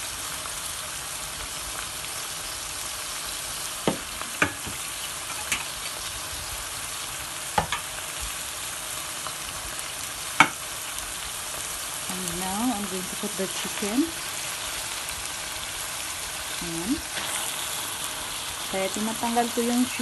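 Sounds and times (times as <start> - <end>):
paste sizzling in hot oil: 0.0 - 20.0
spatula scraping pot: 17.0 - 18.4.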